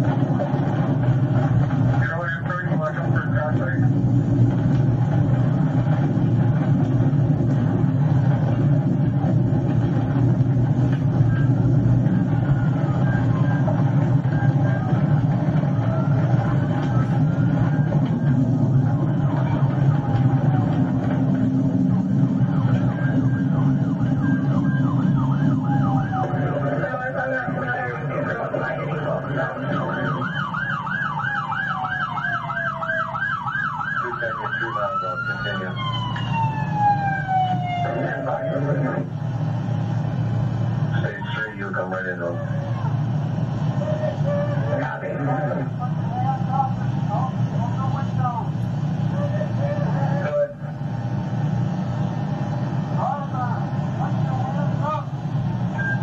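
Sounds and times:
car engine and road noise: 0.0 - 56.0
second siren tone sliding down: 11.1 - 39.1
police siren fast yelp: 11.4 - 21.5, 22.5 - 39.0, 40.9 - 45.0.

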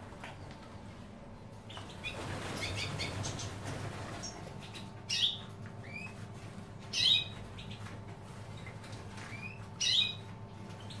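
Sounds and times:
finch high calls: 1.7 - 6.2, 6.8 - 7.9, 9.2 - 11.0.

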